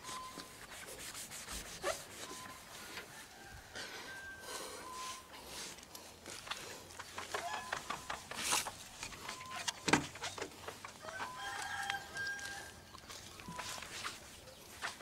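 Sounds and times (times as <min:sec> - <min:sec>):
foam pad rubbing car paint: 0:00.0 - 0:02.8.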